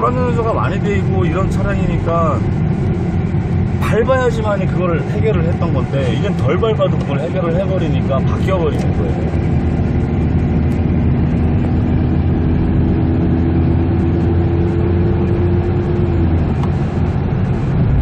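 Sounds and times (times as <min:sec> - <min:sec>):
engine and road rumble: 0:00.0 - 0:18.0
steady hum: 0:00.1 - 0:13.2.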